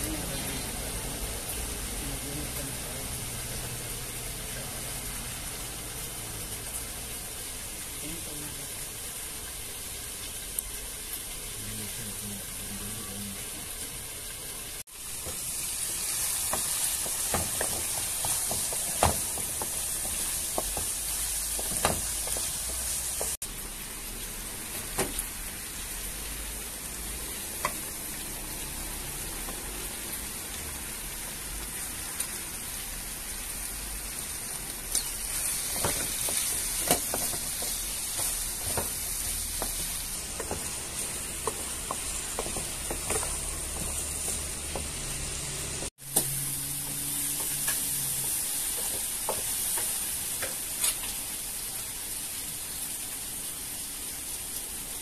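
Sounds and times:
meat and peppers sizzling in pan: 0:00.0 - 0:55.0
wooden spatula knocking and scraping: 0:16.4 - 0:23.4, 0:35.7 - 0:45.0.

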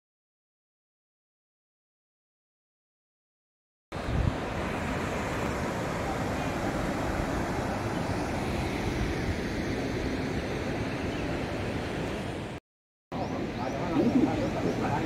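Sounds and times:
river water over cascades: 0:04.0 - 0:12.6
wind buffeting microphone: 0:04.0 - 0:12.6.

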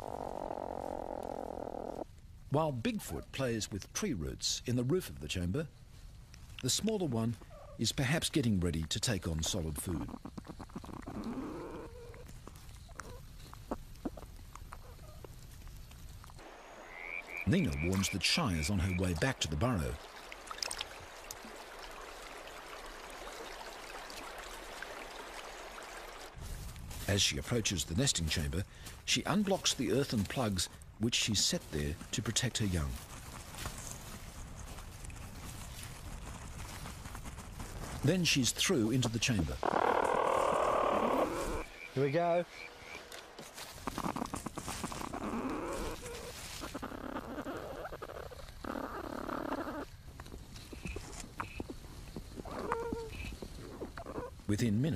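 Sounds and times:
creek trickling: 0:06.3 - 0:54.6
animal rustling through nest material: 0:42.8 - 0:49.8.

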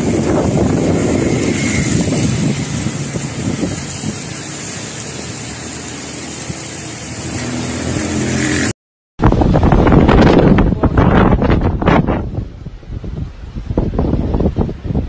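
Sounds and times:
motor scooter engine passing: 0:00.0 - 0:08.7
storm wind and rain hiss: 0:00.0 - 0:15.0.

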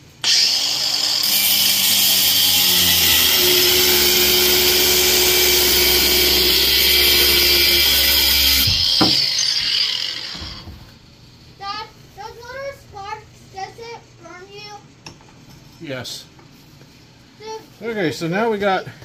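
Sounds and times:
angle grinder grinding metal: 0:00.2 - 0:10.8
knock: 0:08.6 - 0:09.3.

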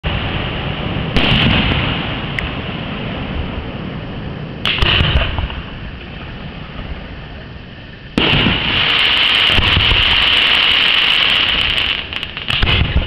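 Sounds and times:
sharp firework bangs and cracks: 0:00.0 - 0:07.1, 0:08.1 - 0:13.0
steady low rumble: 0:00.0 - 0:13.0
firework shells bursting: 0:04.6 - 0:07.2, 0:08.1 - 0:13.0.

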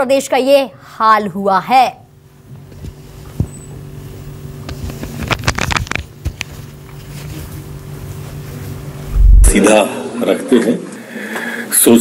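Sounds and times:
low machine hum: 0:06.8 - 0:11.2.

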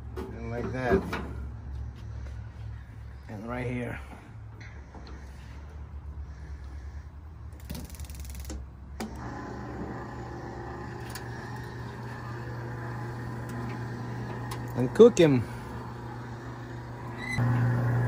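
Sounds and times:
rotisserie grill humming: 0:09.0 - 0:18.0.

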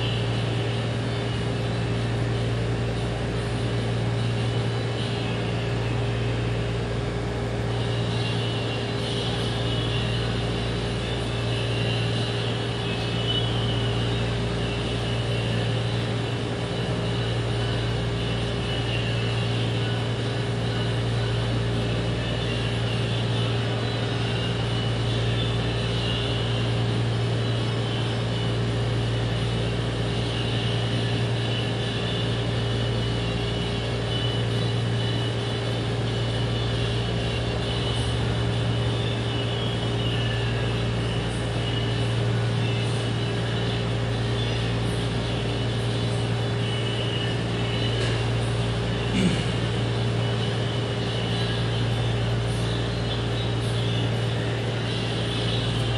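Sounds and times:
faint constant whine: 0:00.0 - 0:55.9
room machinery drone: 0:00.0 - 0:55.9.

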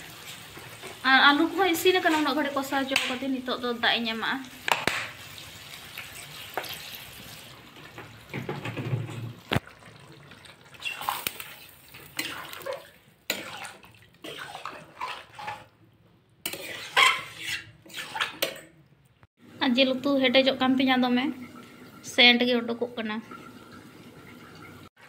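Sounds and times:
curry simmering: 0:00.0 - 0:19.6
metal ladle scraping a pan: 0:10.8 - 0:15.7, 0:16.4 - 0:18.7.

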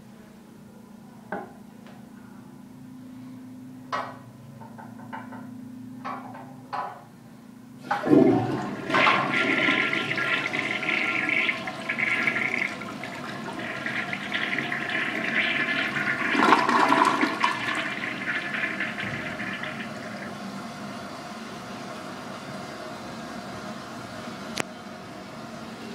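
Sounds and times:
tank refilling with water: 0:07.8 - 0:21.2
toilet flushing: 0:07.8 - 0:24.6.

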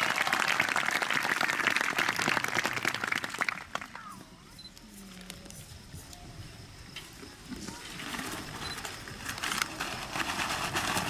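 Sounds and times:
audience applauding: 0:00.0 - 0:04.0
voices: 0:02.2 - 0:09.2.

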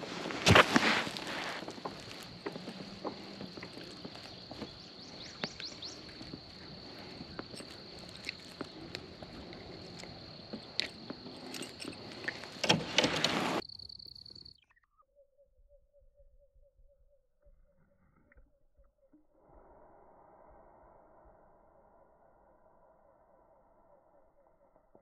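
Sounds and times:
faint pulsing call: 0:00.0 - 0:13.6
high insect trill: 0:00.0 - 0:14.6.

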